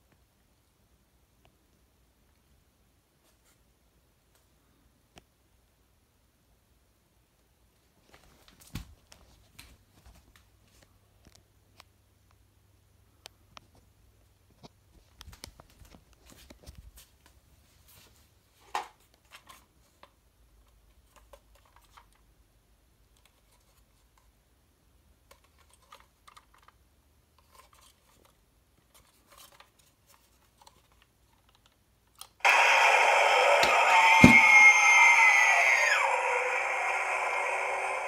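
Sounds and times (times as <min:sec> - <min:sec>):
loud electronic sound effect: 0:32.5 - 0:38.0.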